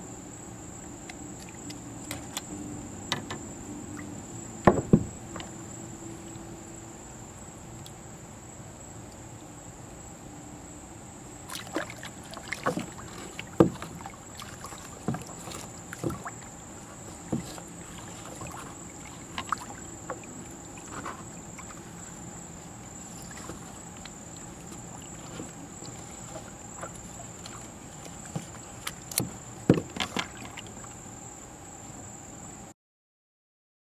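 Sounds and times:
high-pitched insect trill: 0.0s - 32.7s
knocks and clunks on kayak: 1.4s - 6.0s, 11.5s - 31.0s.

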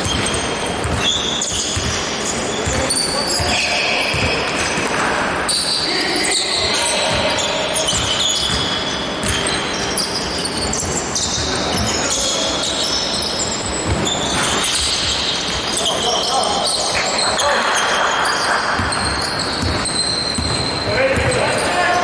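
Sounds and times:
basketball bouncing: 0.0s - 5.0s, 7.0s - 9.6s, 18.8s - 21.4s
sneaker squeaks on floor: 0.0s - 22.0s.

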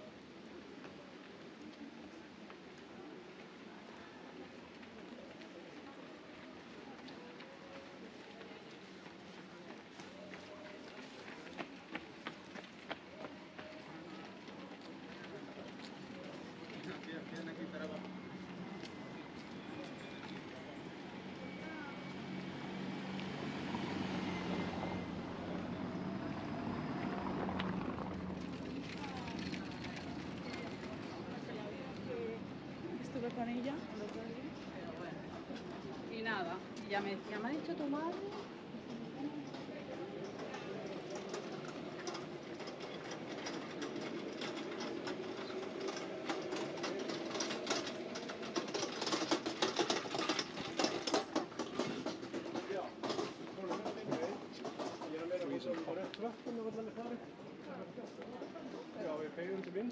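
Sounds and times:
low street murmur: 0.0s - 59.9s
vehicle engine hum: 20.4s - 32.7s.

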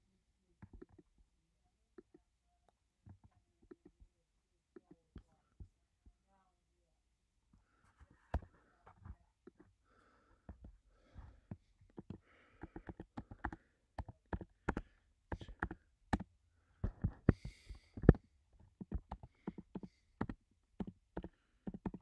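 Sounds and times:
computer keyboard typing: 11.9s - 22.0s.

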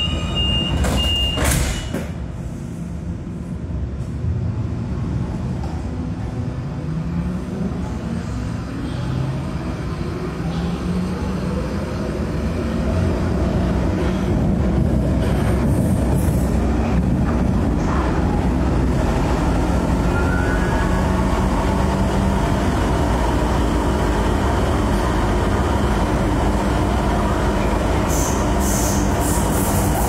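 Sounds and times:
high beep: 0.0s - 1.9s
train rolling noise: 0.0s - 30.0s.

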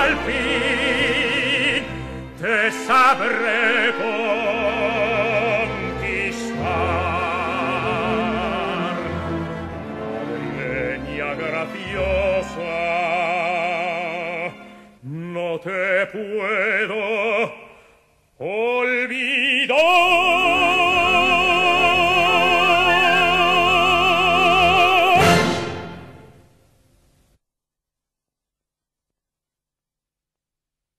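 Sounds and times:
baritone singing opera: 0.0s - 9.5s, 10.2s - 17.8s, 18.4s - 25.9s
orchestra: 0.0s - 17.7s, 18.5s - 26.5s.

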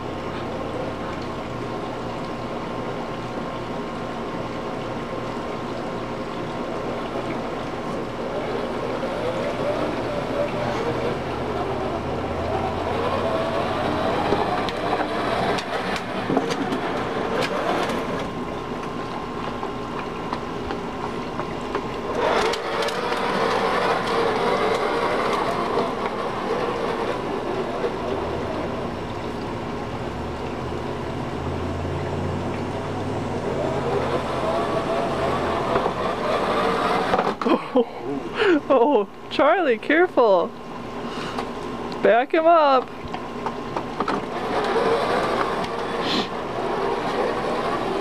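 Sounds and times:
wheel scrape: 8.4s - 18.3s, 22.1s - 28.5s, 33.4s - 37.5s, 44.0s - 48.0s
plastic toy car wheels rolling: 12.5s - 18.3s, 22.1s - 28.2s, 33.6s - 37.5s, 44.0s - 48.0s.

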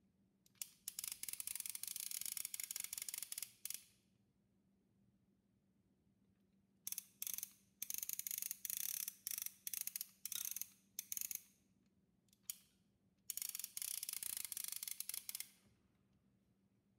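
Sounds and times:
toy fishing reel ratchet clicking: 0.5s - 3.8s, 6.9s - 11.4s, 13.3s - 15.6s.

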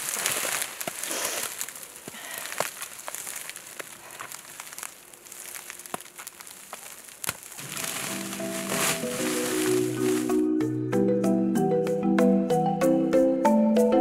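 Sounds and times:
plastic film crinkling: 0.0s - 10.4s.

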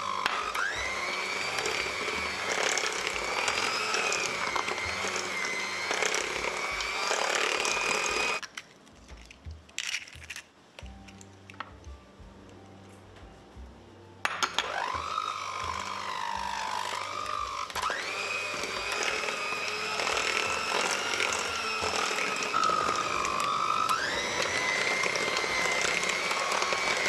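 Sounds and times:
electric mixer motor whine: 0.0s - 8.4s, 14.6s - 27.0s
mixer clicks: 0.0s - 8.6s, 14.6s - 27.0s.

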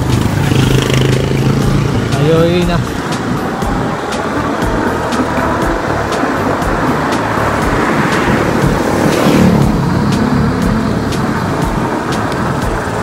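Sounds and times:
car passing by: 0.0s - 13.0s.

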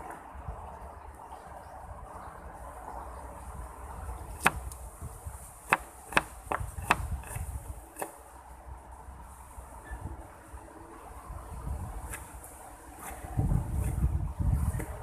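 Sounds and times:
knife chopping onion: 5.7s - 7.4s.

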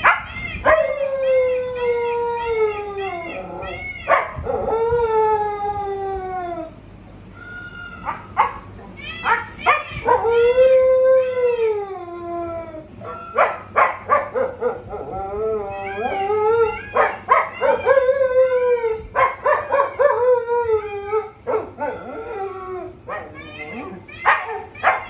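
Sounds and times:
dog yipping: 0.0s - 0.9s, 3.2s - 4.5s, 7.4s - 10.4s, 13.0s - 15.0s, 15.7s - 18.1s, 19.2s - 20.2s, 21.4s - 22.3s, 23.1s - 25.0s
dog howling: 0.0s - 6.8s, 7.6s - 25.0s.

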